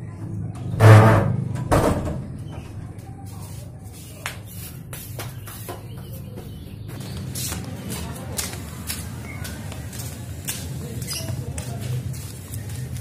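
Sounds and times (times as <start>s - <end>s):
wooden door shutting with thud: 0.8s - 2.3s.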